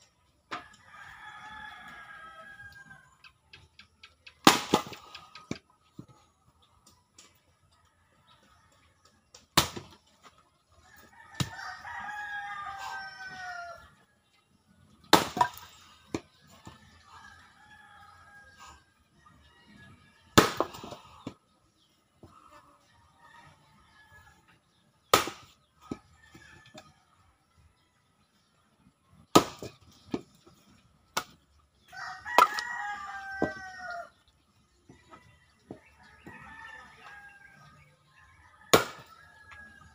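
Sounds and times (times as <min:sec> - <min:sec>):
rooster crowing: 0:00.7 - 0:03.0, 0:10.8 - 0:13.9, 0:31.9 - 0:34.1, 0:35.1 - 0:39.9
axe chopping firewood: 0:04.4 - 0:06.1, 0:09.4 - 0:10.0, 0:11.4 - 0:11.7, 0:15.1 - 0:16.8, 0:20.4 - 0:21.4, 0:25.1 - 0:26.1, 0:29.2 - 0:30.4, 0:31.1 - 0:31.4, 0:38.7 - 0:39.2.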